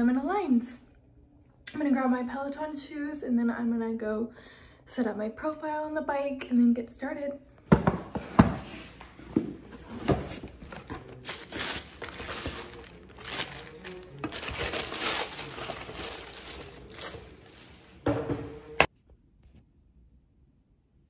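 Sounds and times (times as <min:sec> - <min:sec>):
tissue paper rustling: 0:08.8 - 0:18.6.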